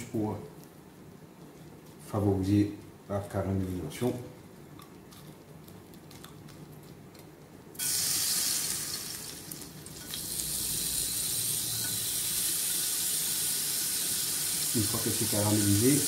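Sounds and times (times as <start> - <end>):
lemon slices sizzling in a frying pan: 7.8 - 16.0.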